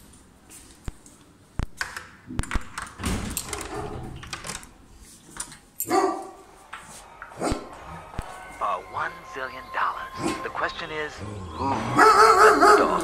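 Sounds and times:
door rattling as it swings: 0:02.5 - 0:04.8.

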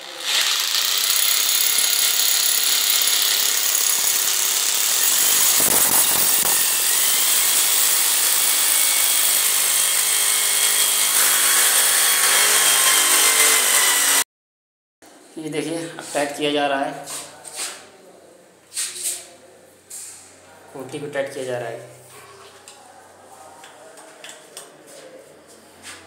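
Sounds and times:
hammer drill boring into tile: 0:00.0 - 0:14.2.

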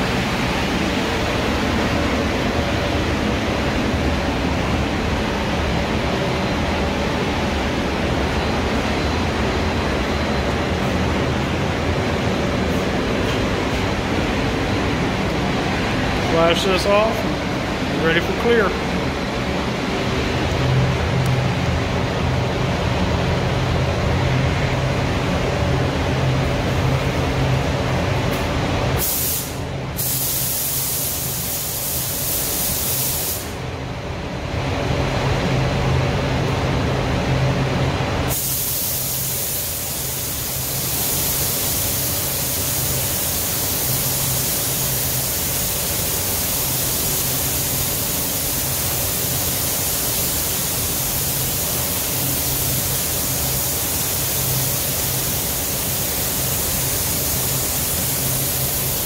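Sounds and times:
ventilation hum: 0:00.0 - 0:59.0
paint spray gun hissing: 0:29.0 - 0:33.6, 0:38.3 - 0:59.0.

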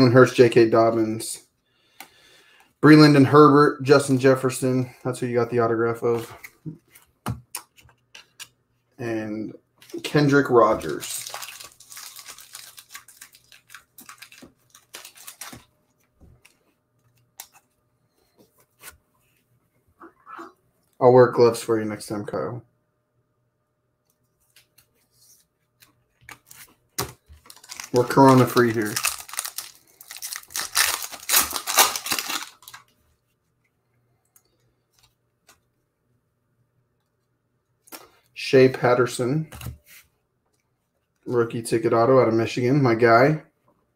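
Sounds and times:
trading cards being handled: 0:09.8 - 0:19.4, 0:24.1 - 0:32.9
foil wrapper tearing and crinkling: 0:10.8 - 0:15.7, 0:27.5 - 0:32.8.

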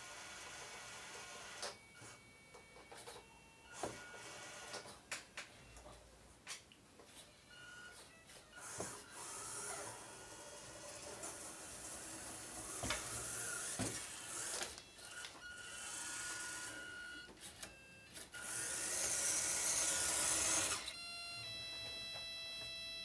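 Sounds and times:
small electric motor whirring: 0:08.6 - 0:17.1, 0:18.4 - 0:21.0.

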